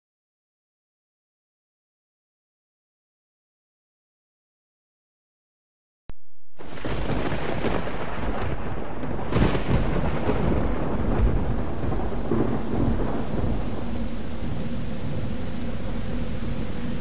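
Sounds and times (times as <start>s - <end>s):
heavy rain: 6.6s - 17.0s
rolling thunder: 6.6s - 17.0s
sharp thunder crack: 6.6s - 17.0s.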